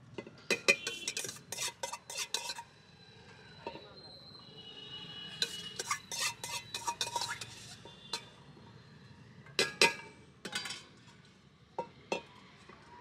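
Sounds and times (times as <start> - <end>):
utensils clinking on metal pans: 0.5 - 2.7, 5.4 - 8.3, 9.6 - 10.9.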